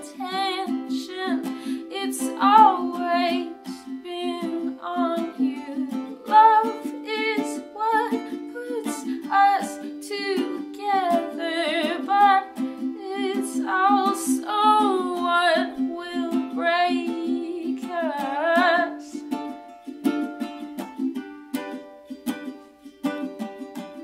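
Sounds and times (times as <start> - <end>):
woman singing: 0.0 - 19.4
picked string instrument: 0.0 - 24.0.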